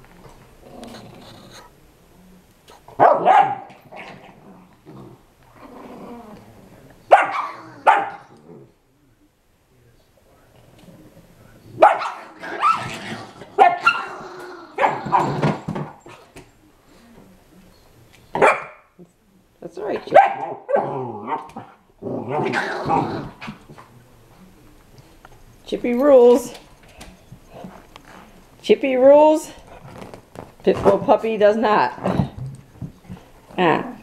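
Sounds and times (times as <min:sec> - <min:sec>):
dogs growling: 0:00.2 - 0:01.8, 0:03.6 - 0:08.9, 0:10.5 - 0:16.4, 0:20.4 - 0:24.0, 0:29.6 - 0:30.2, 0:31.9 - 0:33.3
dogs barking: 0:03.0 - 0:03.8, 0:07.1 - 0:08.3, 0:11.8 - 0:12.9, 0:13.6 - 0:14.2, 0:14.8 - 0:15.4, 0:18.4 - 0:19.0, 0:20.1 - 0:21.7.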